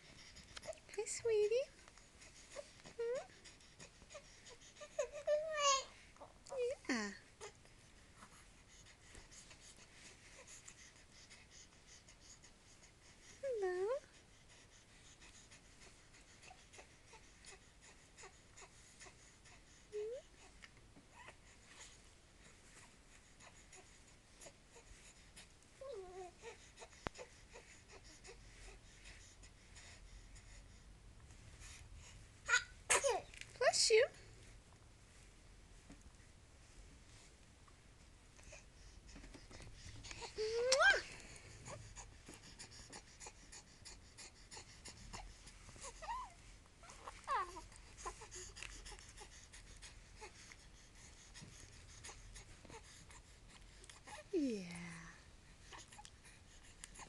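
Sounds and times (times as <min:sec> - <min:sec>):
baby vocal sound: 0:40.0 - 0:42.1, 0:45.8 - 0:49.3.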